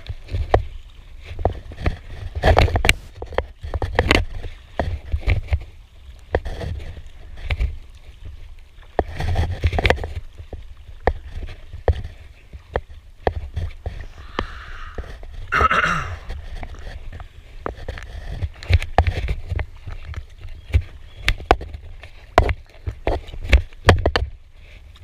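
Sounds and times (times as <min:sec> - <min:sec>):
paddle splashing in water: 0:00.0 - 0:25.0.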